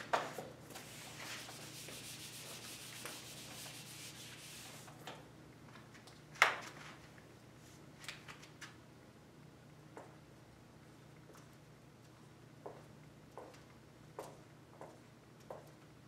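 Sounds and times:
marker wiped off whiteboard: 0:00.7 - 0:05.0.

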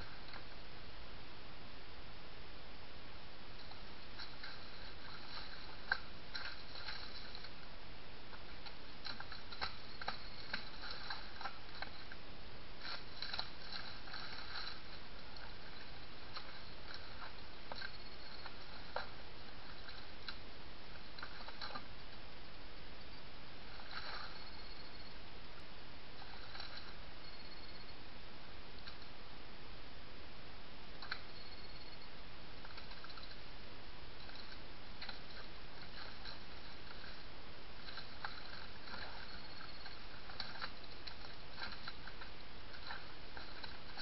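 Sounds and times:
wet squelches and splashes: 0:03.6 - 0:07.7, 0:08.4 - 0:12.2, 0:12.8 - 0:21.9, 0:34.2 - 0:44.0.

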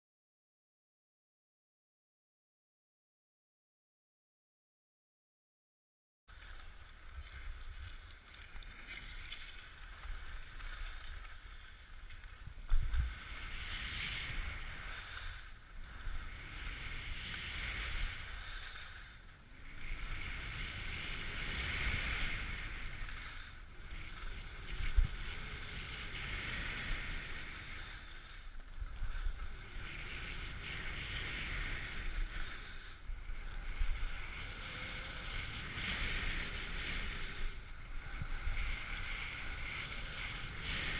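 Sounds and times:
skis scraping on snow: 0:06.3 - 0:40.9
wind buffeting microphone: 0:19.6 - 0:40.9.

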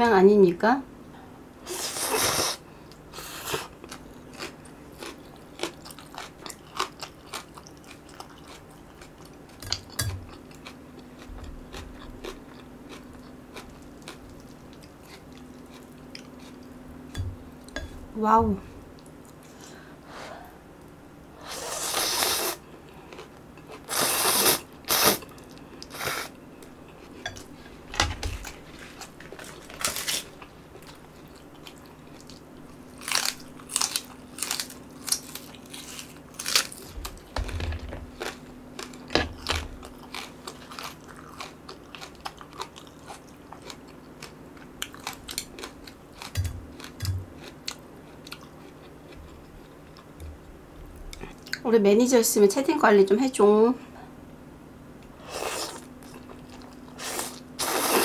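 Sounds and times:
crunching bites and chewing: 0:03.5 - 0:16.7, 0:28.4 - 0:37.4, 0:38.1 - 0:50.2
noodles slurped: 0:57.0 - 0:58.0.

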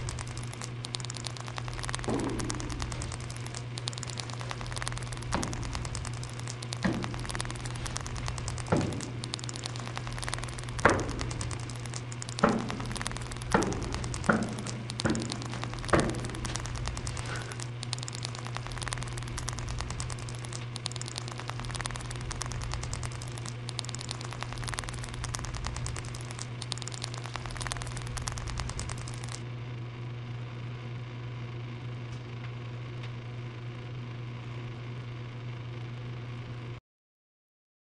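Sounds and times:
crackling static: 0:00.0 - 0:29.5
low electrical hum: 0:00.0 - 0:36.8.

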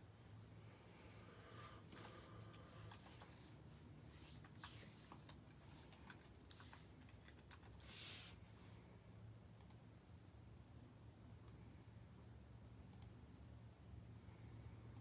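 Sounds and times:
soft rustles: 0:00.0 - 0:08.8
soft hiss: 0:00.0 - 0:09.8
faint clicks: 0:09.6 - 0:09.8, 0:12.9 - 0:13.2.

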